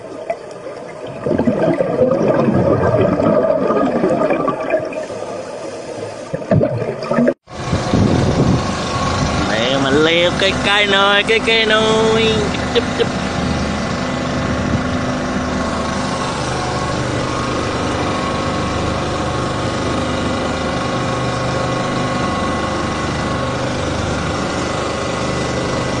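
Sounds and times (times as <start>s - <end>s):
boat engine idling: 7.4s - 26.0s.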